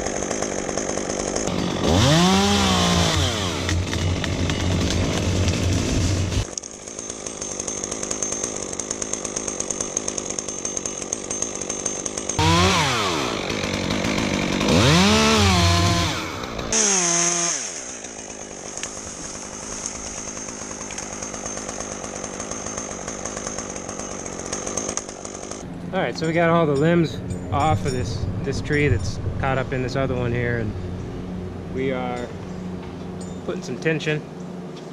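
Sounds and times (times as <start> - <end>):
chainsaw revving and idling: 0.0 - 26.8.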